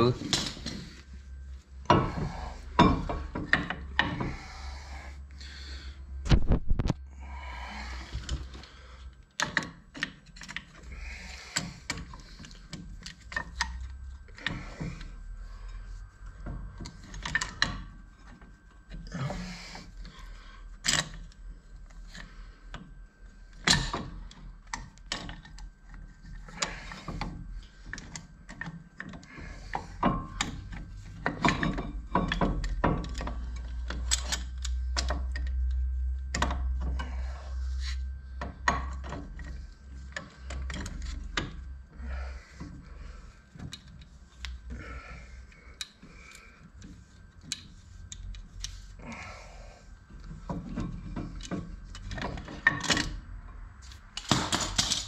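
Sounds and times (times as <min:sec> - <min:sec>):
metal tools clicking and scraping: 0:30.0 - 0:37.2, 0:53.8 - 0:55.0.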